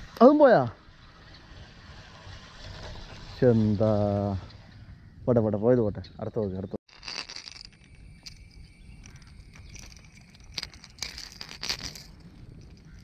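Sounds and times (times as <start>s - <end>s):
insects buzzing: 6.9s - 13.0s.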